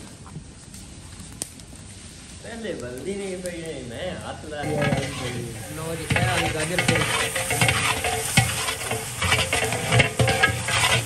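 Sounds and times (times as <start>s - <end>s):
food sizzling in hot oil: 4.6s - 11.0s
metal ladle scraping metal pot: 4.6s - 11.0s.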